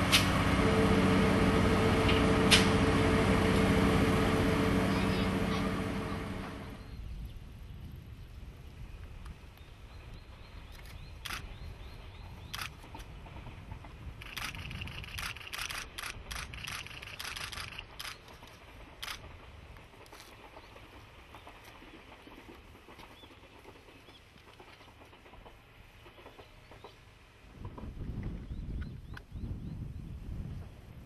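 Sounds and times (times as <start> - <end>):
low steady rumble: 0.0 - 9.0.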